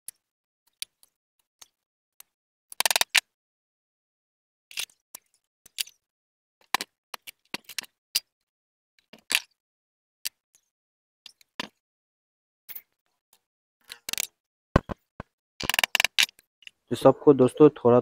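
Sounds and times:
metal parts clicking and knocking: 0:02.7 - 0:03.3, 0:04.7 - 0:08.3, 0:09.0 - 0:09.6, 0:13.8 - 0:15.0, 0:15.6 - 0:16.8.

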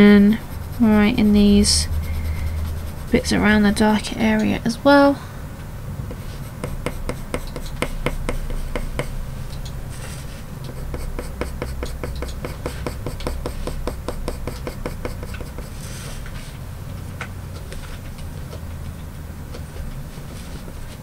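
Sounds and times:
pencil strokes ticking on paper: 0:00.3 - 0:03.4, 0:06.5 - 0:09.2, 0:10.7 - 0:15.8.

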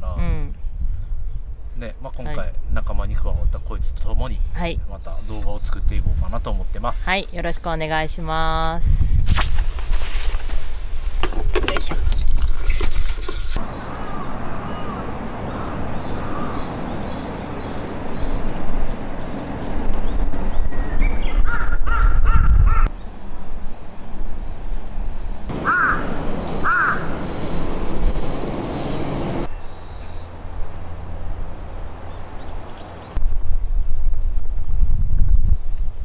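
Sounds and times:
wind rumble on microphone: 0:00.0 - 0:25.5, 0:30.4 - 0:36.0
crows cawing: 0:13.6 - 0:17.0, 0:21.5 - 0:22.9, 0:25.5 - 0:27.4.

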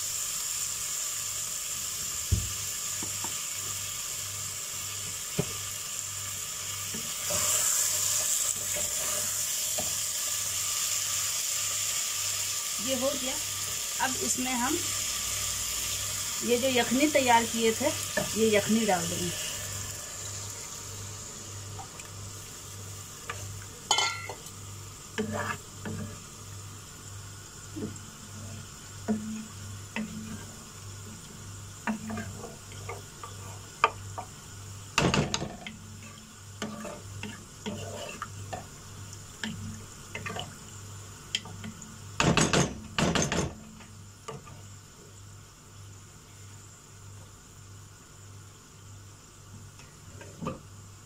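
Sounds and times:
potatoes sizzling in oil: 0:00.0 - 0:51.0
wooden spatula stirring in pot: 0:25.1 - 0:26.3, 0:31.8 - 0:34.3, 0:35.5 - 0:38.7.

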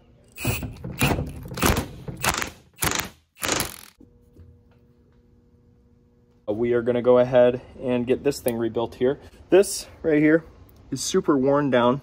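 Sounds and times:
wrench turning puller screw: 0:00.4 - 0:03.9.

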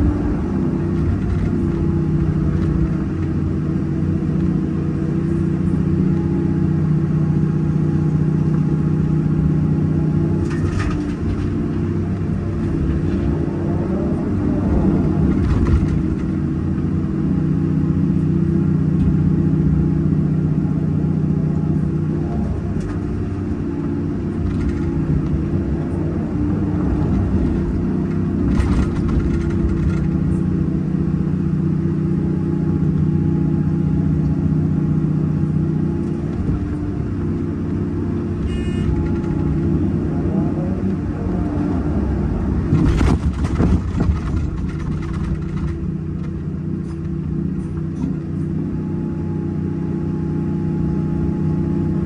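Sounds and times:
excavator diesel engine: 0:00.0 - 0:52.0
bucket clattering on stony soil: 0:42.7 - 0:45.9.

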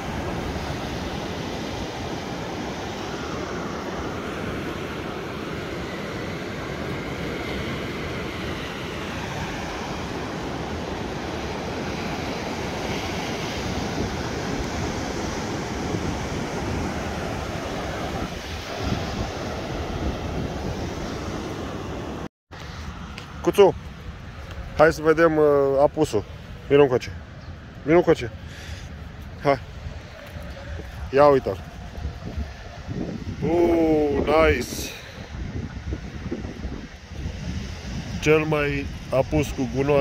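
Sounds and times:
surf washing on beach: 0:00.0 - 0:40.0
wind noise on microphone: 0:13.6 - 0:22.2, 0:29.6 - 0:40.0.

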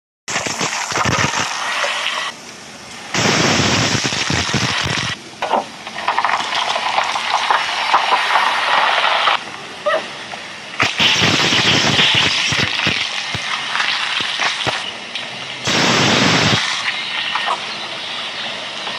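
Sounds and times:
fizzy drink spraying hiss: 0:10.8 - 0:14.8, 0:15.7 - 0:17.5.

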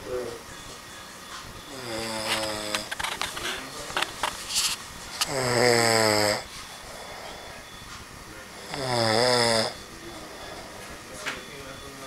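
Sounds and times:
man snoring loudly: 0:01.7 - 0:02.9, 0:05.2 - 0:07.6, 0:08.6 - 0:10.8.

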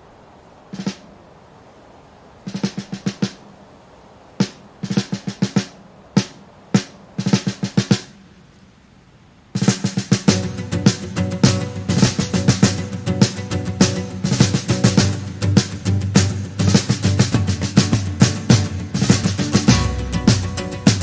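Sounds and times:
snare drum rolls: 0:00.7 - 0:01.1, 0:02.4 - 0:03.5, 0:04.4 - 0:08.2, 0:09.6 - 0:21.0
rock band playing: 0:10.1 - 0:21.0.

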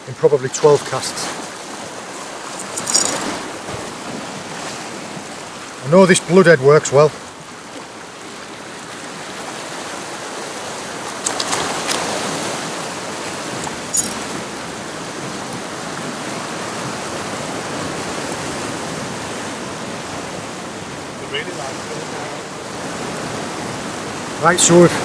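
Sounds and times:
sea water washing around rocks: 0:00.6 - 0:05.9, 0:07.2 - 0:25.0.

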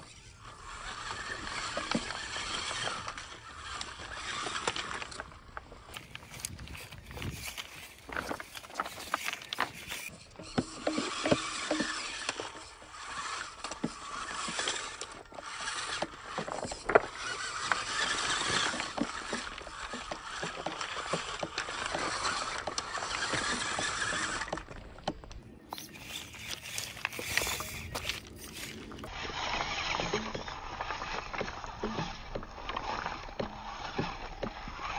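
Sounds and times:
rc car running: 0:00.0 - 0:34.9
pebbles clicking and clattering: 0:05.9 - 0:10.1, 0:25.7 - 0:29.1.

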